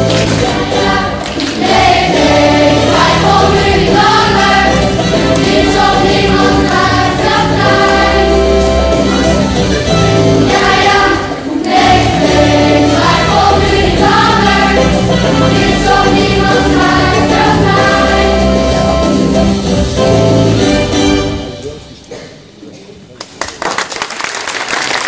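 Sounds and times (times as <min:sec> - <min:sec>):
children's choir singing: 0:00.0 - 0:09.4, 0:10.1 - 0:19.1
instrumental accompaniment: 0:00.0 - 0:22.2.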